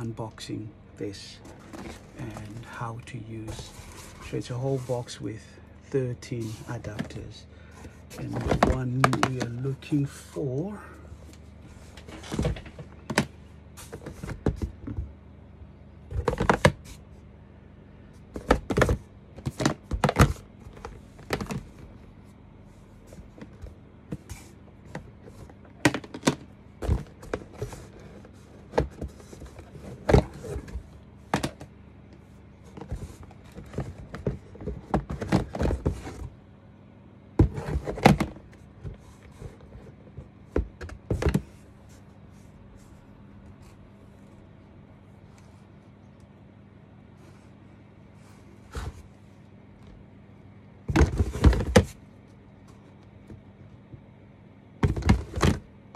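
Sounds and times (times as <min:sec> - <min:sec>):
plastic cases clacking: 0:01.4 - 0:02.8, 0:06.4 - 0:10.1, 0:11.3 - 0:15.0, 0:16.1 - 0:17.0, 0:18.3 - 0:21.9, 0:23.1 - 0:31.7, 0:32.7 - 0:36.4, 0:37.4 - 0:41.6, 0:50.9 - 0:52.0, 0:54.8 - 0:55.7.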